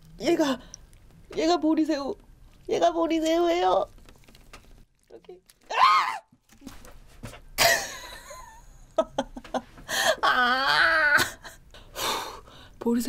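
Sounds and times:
woman crying out: 0:10.0 - 0:11.5.

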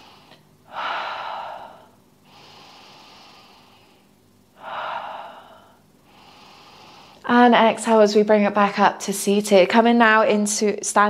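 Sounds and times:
woman breathing deeply: 0:00.0 - 0:07.3.

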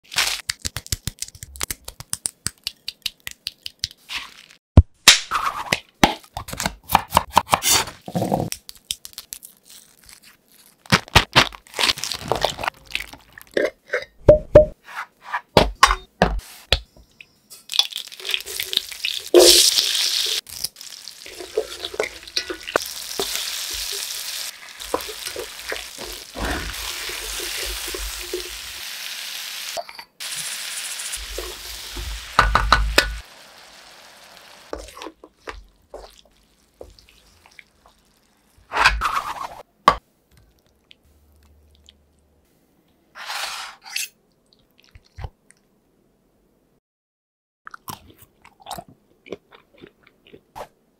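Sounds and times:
hot oil sizzling: 0:17.9 - 0:34.9.

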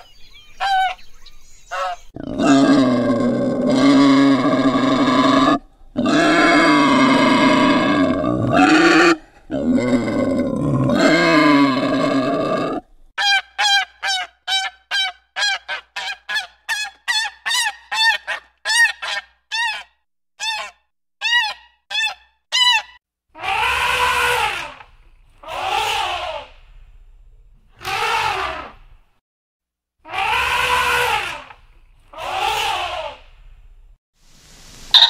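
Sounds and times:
elephant trumpeting: 0:01.8 - 0:09.2, 0:30.1 - 0:31.5
wild boar grunting: 0:02.2 - 0:12.9.

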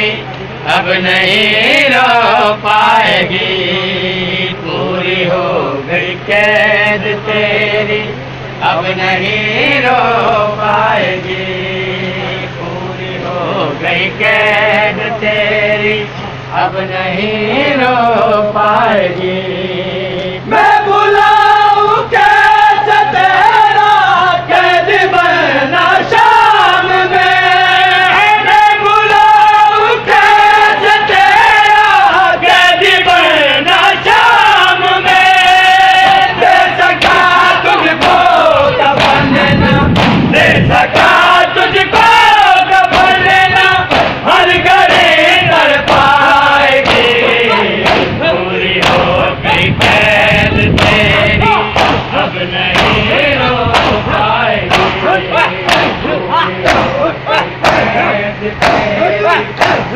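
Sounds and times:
men chanting in unison: 0:00.0 - 0:59.9
chest-beating slaps: 0:39.0 - 0:39.3, 0:39.9 - 0:40.3, 0:43.9 - 0:44.2, 0:46.8 - 0:48.2, 0:48.8 - 0:49.1, 0:49.8 - 0:50.0, 0:50.8 - 0:51.1, 0:51.7 - 0:53.1, 0:53.7 - 0:54.1, 0:54.7 - 0:57.0, 0:57.6 - 0:58.0, 0:58.6 - 0:59.9.

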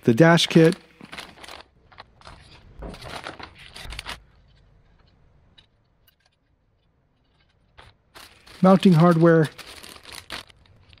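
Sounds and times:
plastic bag crinkling: 0:00.2 - 0:04.6, 0:07.2 - 0:11.0.

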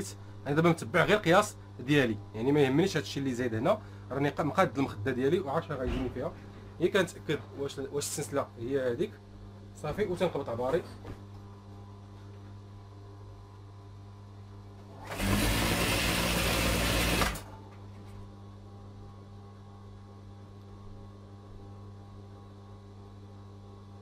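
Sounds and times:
steady low hum: 0:00.0 - 0:15.1, 0:17.4 - 0:24.0
sewing machine running: 0:14.9 - 0:17.5.

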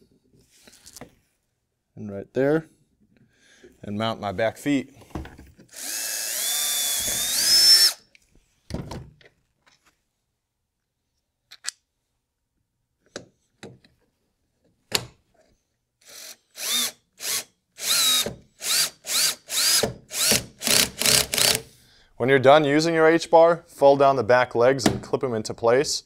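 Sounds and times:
cordless drill whining: 0:05.7 - 0:08.1, 0:16.0 - 0:21.7
parts clicking and knocking: 0:11.5 - 0:11.8.

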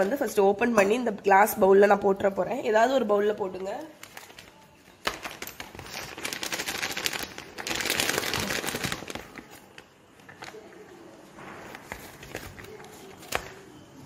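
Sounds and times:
plastic pouch crinkling: 0:03.9 - 0:10.8.

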